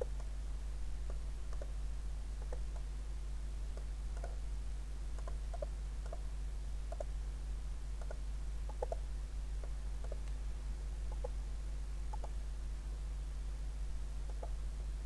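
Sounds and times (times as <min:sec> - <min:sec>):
steady low hum: 0:00.0 - 0:15.0
computer mouse clicking: 0:01.1 - 0:01.7, 0:02.4 - 0:02.9, 0:03.8 - 0:04.4, 0:05.2 - 0:06.2, 0:06.9 - 0:07.1, 0:08.0 - 0:09.0, 0:09.6 - 0:10.4, 0:11.1 - 0:11.4, 0:12.1 - 0:12.4, 0:14.3 - 0:14.6.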